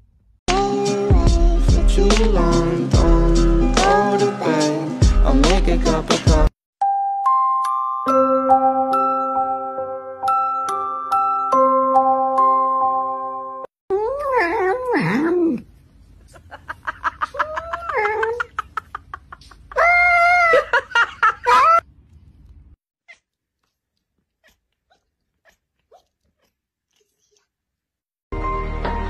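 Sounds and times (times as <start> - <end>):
cats meowing: 23.1 - 27.5.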